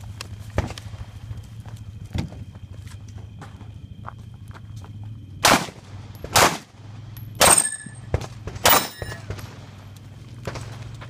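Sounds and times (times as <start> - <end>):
gunshots: 5.4 - 6.8, 7.4 - 9.8.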